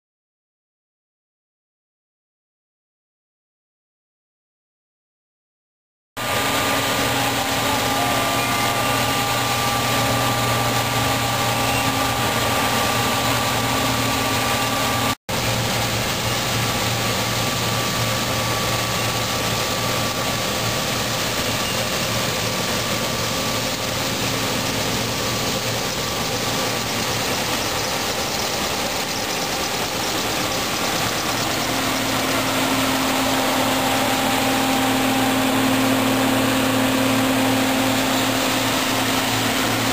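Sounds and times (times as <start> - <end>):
combine harvester engine drone: 6.2 - 39.9
machinery whining tones: 6.2 - 39.9.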